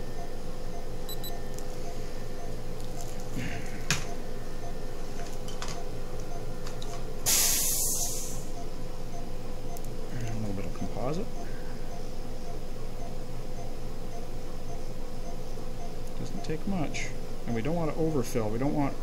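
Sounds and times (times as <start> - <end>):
steady low hum: 0.0 - 19.0
faint short beeps: 1.1 - 2.0
compressed air hissing: 7.3 - 8.5.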